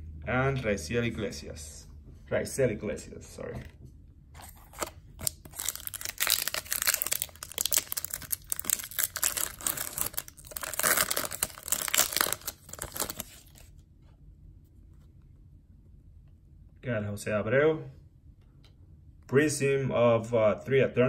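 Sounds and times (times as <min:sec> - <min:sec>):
foil wrapper crinkling and tearing: 0:04.7 - 0:13.7.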